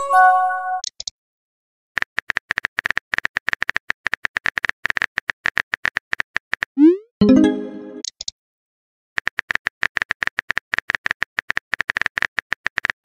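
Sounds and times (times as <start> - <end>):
multi-tone message chime: 7.2 - 8.0.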